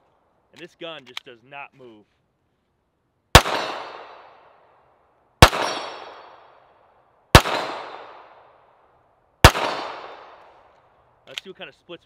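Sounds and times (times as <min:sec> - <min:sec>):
pistol shots with echo: 0:03.3 - 0:04.6, 0:05.4 - 0:06.7, 0:07.3 - 0:08.6, 0:09.4 - 0:10.7.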